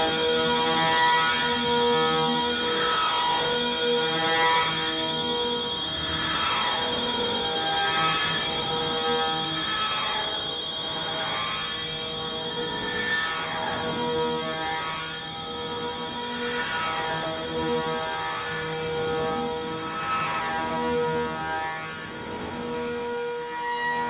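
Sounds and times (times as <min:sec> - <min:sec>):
sustained electronic tones: 0:00.0 - 0:20.0
high warbling whistle: 0:01.6 - 0:19.7.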